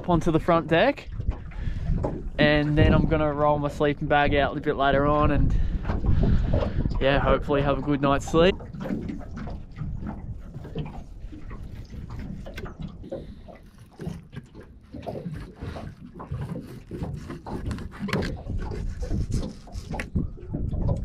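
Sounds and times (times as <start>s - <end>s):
knife cutting and scraping fish: 10.5s - 20.2s.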